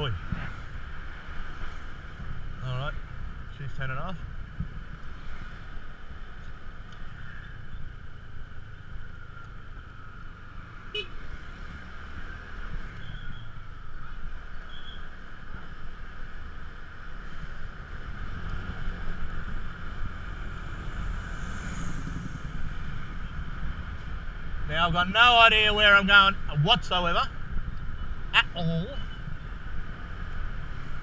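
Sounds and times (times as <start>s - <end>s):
wind rumble on microphone: 17.3s - 25.0s.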